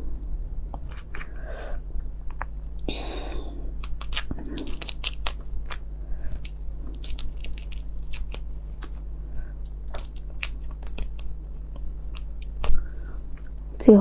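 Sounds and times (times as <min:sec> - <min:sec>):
low hum: 0:00.0 - 0:14.0
shrimp shell cracking: 0:03.8 - 0:12.9.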